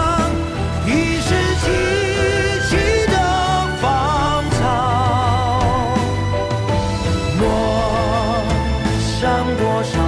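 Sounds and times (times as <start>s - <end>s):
ballad sung with vibrato: 0.0s - 10.0s
sustained instrumental accompaniment: 0.0s - 10.0s.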